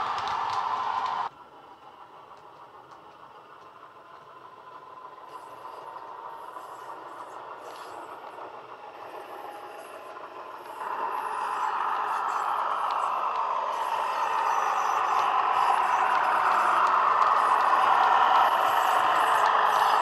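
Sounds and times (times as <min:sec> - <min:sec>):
model train diesel engine sound: 0:00.0 - 0:20.0
faint clicking: 0:02.2 - 0:06.3, 0:09.4 - 0:20.0.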